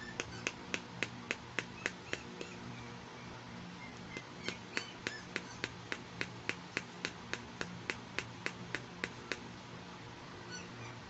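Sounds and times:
fingernail tapping on plastic: 0:00.0 - 0:02.6, 0:04.1 - 0:09.5.

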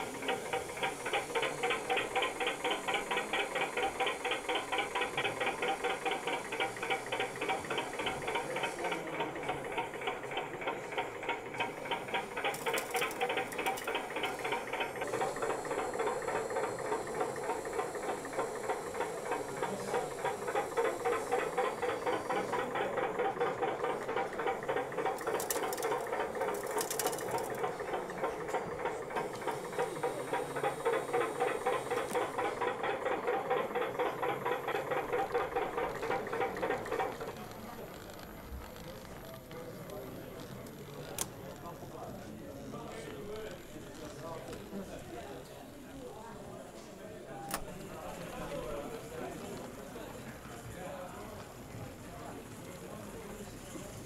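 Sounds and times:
small electric motor clicking: 0:11.3 - 0:23.3, 0:24.0 - 0:27.8.

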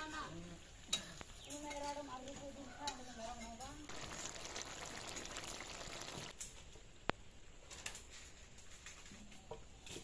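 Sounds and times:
curry bubbling: 0:03.9 - 0:06.4.

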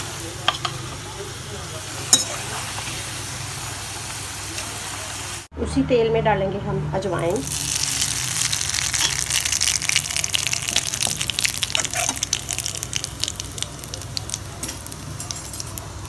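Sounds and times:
seeds sizzling in hot oil: 0:07.4 - 0:16.0.

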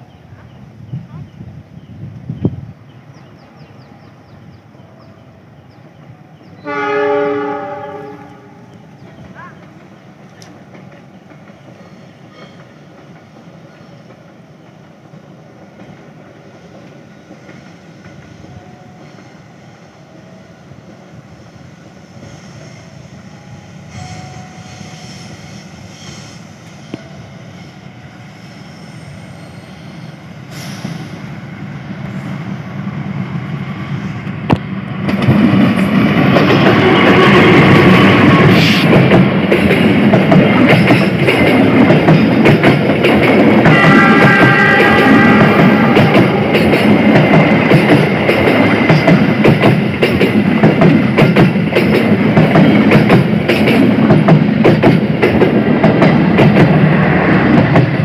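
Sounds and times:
diesel locomotive passing: 0:00.0 - 0:58.0.

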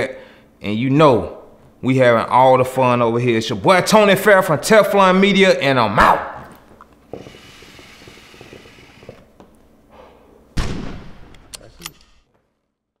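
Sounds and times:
loud bang: 0:10.6 - 0:11.4.

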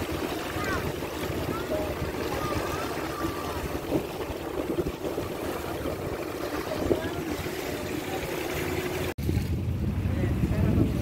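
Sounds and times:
water rushing along hull: 0:00.0 - 0:11.0
wind buffeting microphone: 0:00.0 - 0:11.0
faint voices: 0:00.3 - 0:09.1.

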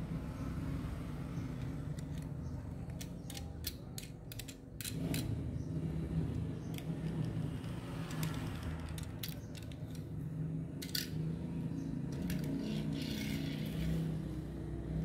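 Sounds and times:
toy car clicking and tapping: 0:01.5 - 0:05.4, 0:06.3 - 0:10.2, 0:10.8 - 0:11.2, 0:12.1 - 0:14.1.

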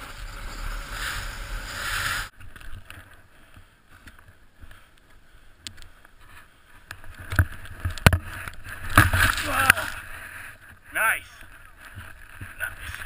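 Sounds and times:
snowboard carving through snow: 0:00.0 - 0:02.3.

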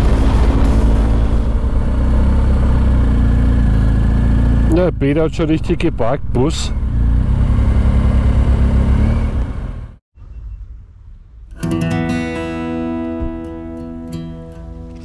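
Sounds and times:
motorcycle engine rumbling: 0:00.0 - 0:11.4
acoustic guitar music: 0:11.5 - 0:15.0.

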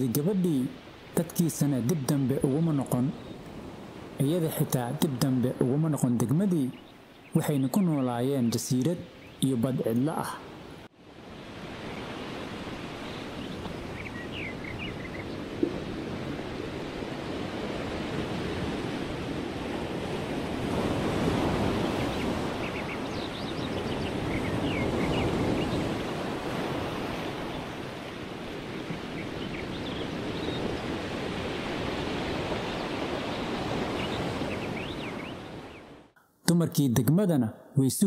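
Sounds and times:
ocean waves washing: 0:00.0 - 0:36.2.

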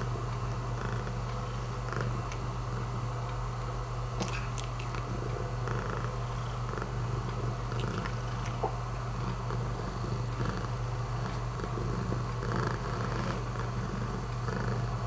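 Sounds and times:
cat purring: 0:00.7 - 0:03.0, 0:04.2 - 0:15.0.

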